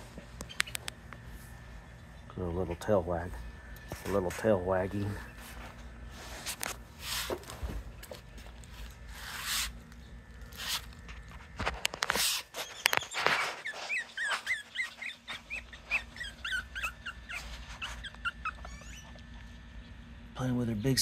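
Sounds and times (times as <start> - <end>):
scuffing and rustling: 3.9 - 9.6
puppy whimpering: 12.6 - 19.4.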